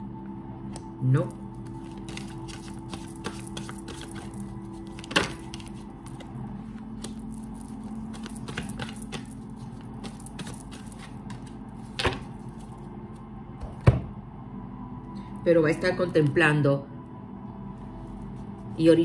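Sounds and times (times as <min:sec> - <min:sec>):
cards being shuffled: 0:01.6 - 0:12.8.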